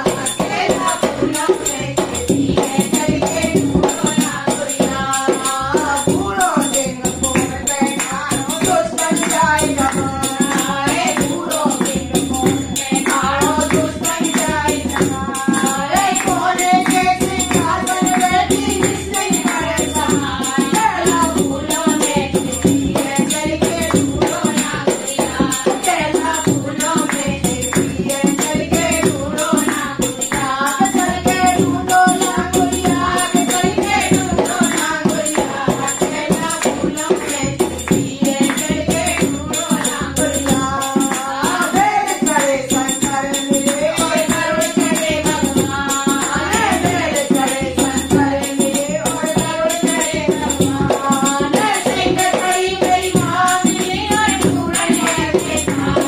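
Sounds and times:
hand drum beat: 0:00.0 - 0:56.0
woman singing: 0:00.0 - 0:56.0.

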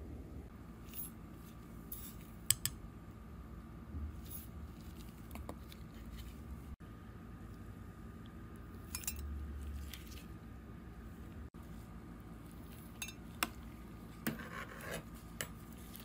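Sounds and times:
steady low hum: 0:00.0 - 0:16.0
spoon clinking and scraping glass: 0:08.9 - 0:09.3, 0:12.9 - 0:13.3.

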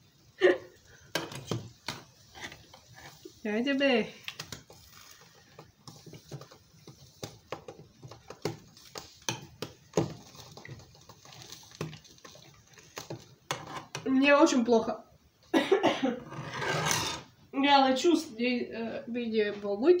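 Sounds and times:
chicken frying: 0:00.0 - 0:14.0
fork scraping a pan: 0:01.2 - 0:03.4, 0:13.5 - 0:14.0, 0:16.2 - 0:17.3.

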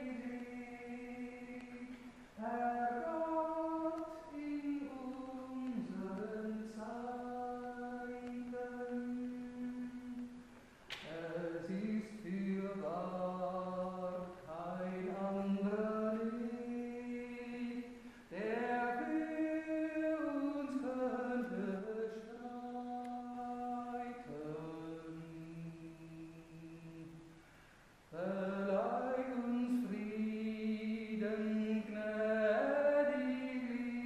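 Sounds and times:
woman singing a hymn solo: 0:00.0 - 0:10.4
singer breathing: 0:18.0 - 0:18.3, 0:27.3 - 0:28.0.

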